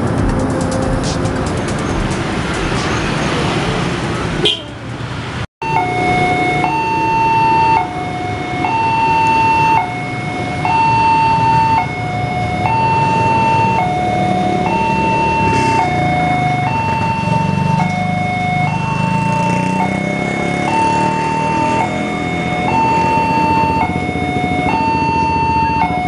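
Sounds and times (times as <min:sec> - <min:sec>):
street traffic noise: 0:00.0 - 0:26.0
two-tone crossing alarm: 0:05.6 - 0:26.0.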